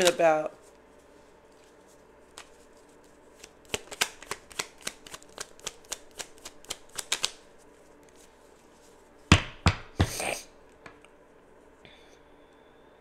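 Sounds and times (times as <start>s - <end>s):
cards shuffled by hand: 0.0s - 9.1s.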